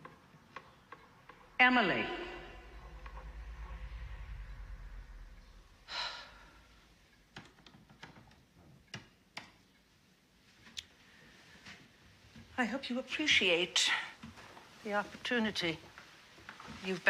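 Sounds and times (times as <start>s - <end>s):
faint low rumble: 1.2s - 7.5s.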